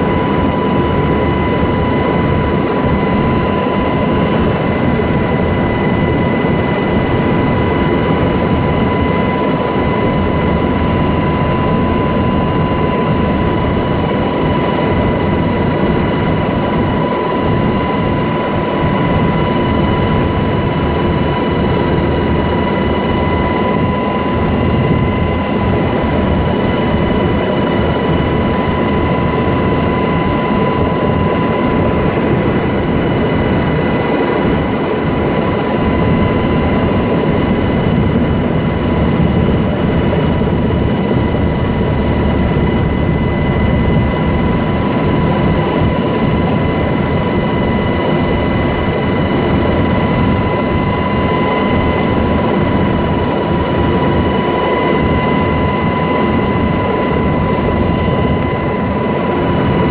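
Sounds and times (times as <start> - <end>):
helicopter engine and rotor noise: 0.0 - 59.9.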